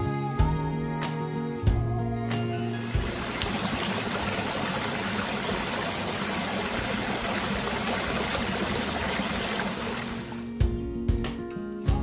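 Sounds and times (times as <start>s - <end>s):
water rushing over rocks: 2.8s - 10.5s.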